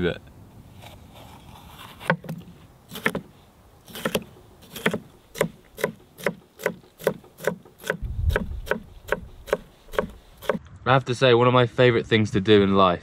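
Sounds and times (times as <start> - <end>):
knife chopping on wooden board: 3.9 - 10.6.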